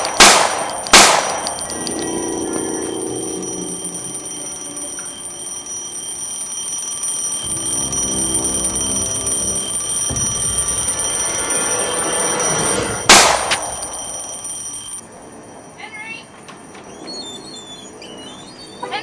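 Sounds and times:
alarm clock ringing: 0:00.0 - 0:19.0
loud gunshot: 0:00.2 - 0:01.5
low rising swell: 0:01.6 - 0:15.0.

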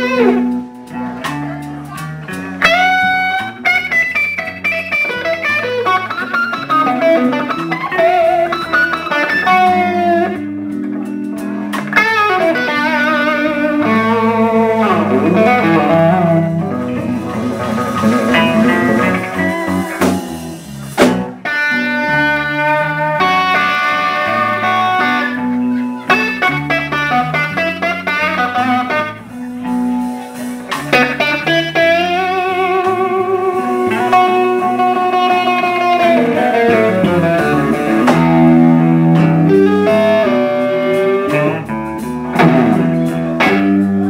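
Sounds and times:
bass and drums: 0:00.0 - 0:44.0
electric guitar solo with bent notes: 0:00.0 - 0:44.0
sharp drum hits: 0:17.8 - 0:21.4.

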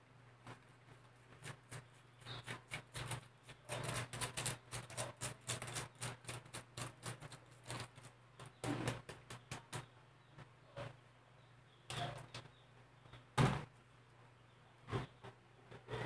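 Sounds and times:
cheese grated on metal grater: 0:01.3 - 0:09.0.

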